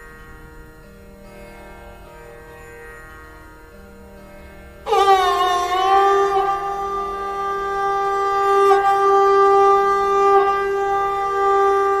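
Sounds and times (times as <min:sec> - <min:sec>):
wind instrument holding long note: 0:04.9 - 0:12.0.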